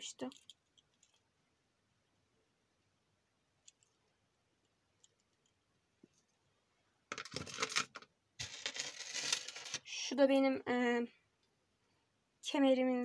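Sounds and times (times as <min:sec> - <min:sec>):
beaded necklace rattling: 0:00.2 - 0:01.3.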